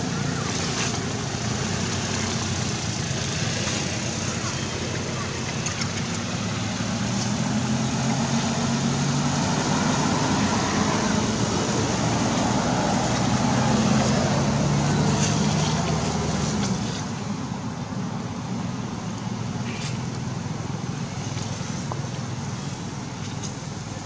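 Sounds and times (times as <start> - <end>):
faint clicks: 5.4 - 6.3.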